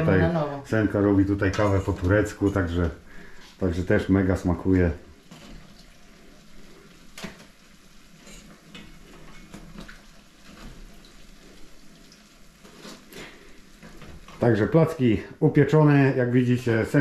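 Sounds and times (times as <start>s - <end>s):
oil sizzling in a frying pan: 0.0s - 17.0s
kitchenware clinking: 1.3s - 2.9s, 8.2s - 9.9s.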